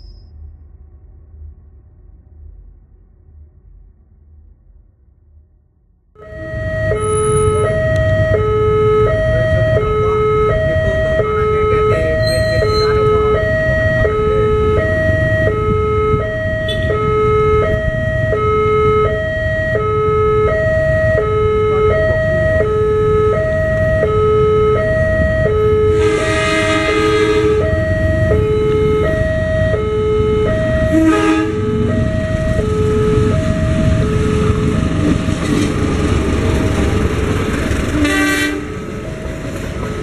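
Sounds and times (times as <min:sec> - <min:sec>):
low rumble: 0:00.0 - 0:38.0
diesel locomotive horn blast: 0:06.2 - 0:23.4, 0:24.0 - 0:34.7, 0:37.9 - 0:39.3
level crossing two-tone alarm: 0:06.2 - 0:35.2.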